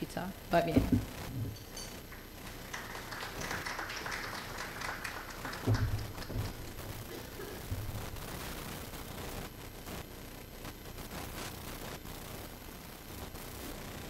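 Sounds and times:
dull thumps: 0.7 - 1.6, 5.6 - 8.3
audience applauding: 2.1 - 8.2.

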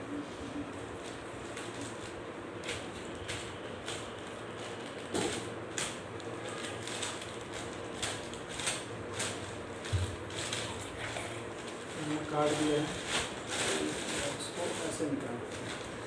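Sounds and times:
plastic bag being cut and torn: 1.5 - 10.8.

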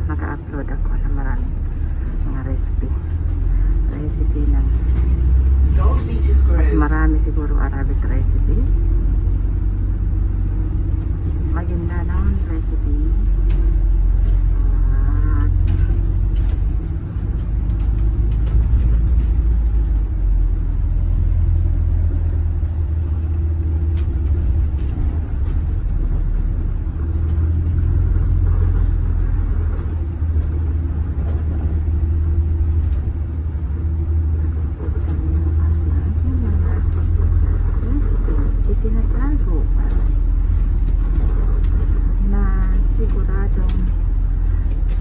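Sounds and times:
bus engine and road rumble: 0.0 - 45.0
light clicks and rattles: 10.2 - 14.5, 15.4 - 45.0.

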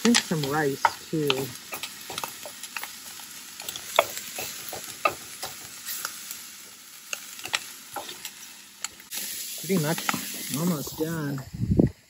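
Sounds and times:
spatula scraping and tapping pan: 0.0 - 3.0, 3.6 - 6.2, 7.1 - 9.0
food sizzling in a wok: 0.0 - 12.0.

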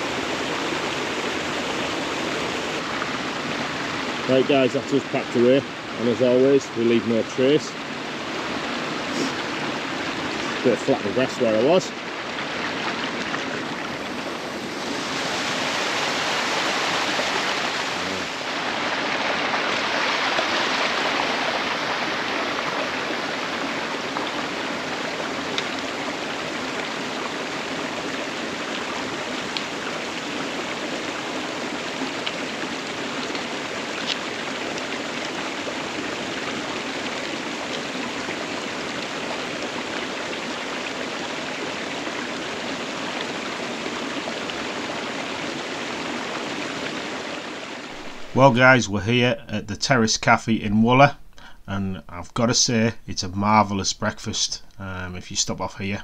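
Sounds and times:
stream and waterfall rushing: 0.0 - 50.3.

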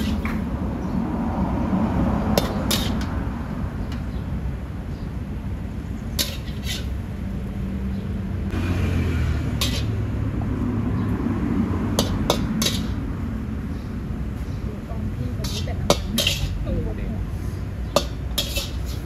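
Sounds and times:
metal cookware clinks: 15.4 - 16.6.

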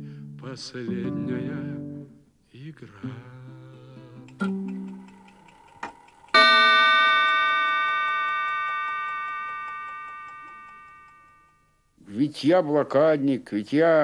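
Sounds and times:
faint regular ticking: 4.2 - 11.8
bell chime ringing: 6.4 - 11.8.

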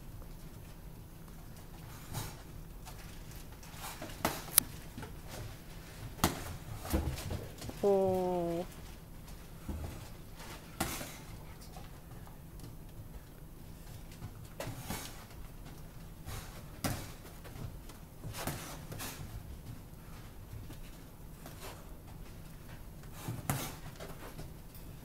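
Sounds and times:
boxing gloves slapping and thudding: 6.2 - 6.5.

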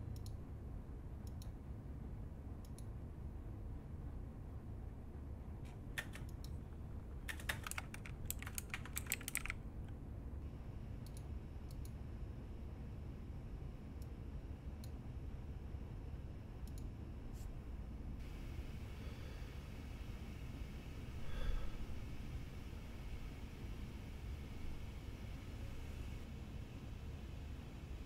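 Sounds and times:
typing on a mechanical keyboard: 6.0 - 6.4, 7.2 - 9.6.

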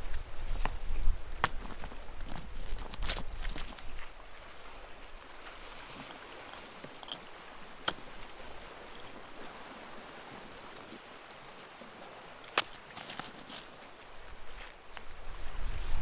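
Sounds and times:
light clicks of stones: 0.5 - 4.1, 5.2 - 9.2, 12.4 - 15.5
stones knocking: 1.4 - 4.0.

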